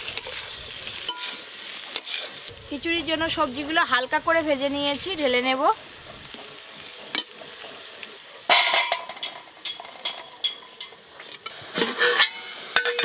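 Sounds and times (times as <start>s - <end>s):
metal spatula clinking on pan: 8.5s - 11.0s, 12.0s - 13.0s.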